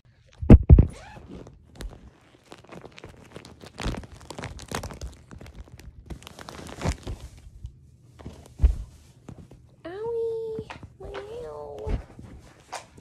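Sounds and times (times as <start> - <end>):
plastic packaging crinkling: 1.2 - 7.6.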